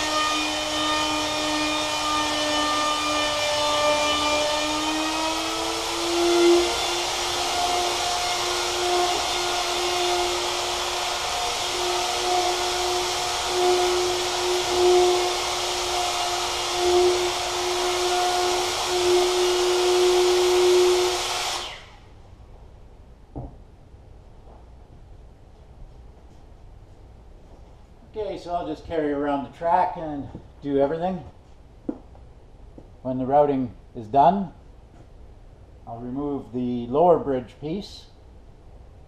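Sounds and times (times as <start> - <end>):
router whining: 0.0 - 22.1.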